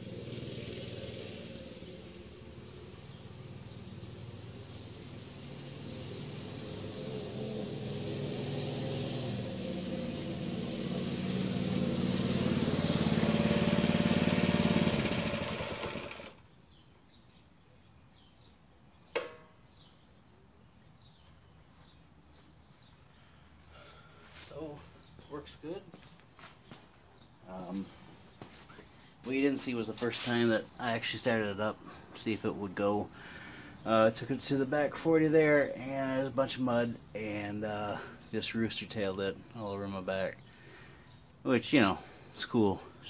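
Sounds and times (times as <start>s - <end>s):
faint birdsong: 0.0s - 43.0s
mini bike engine running: 11.8s - 16.4s.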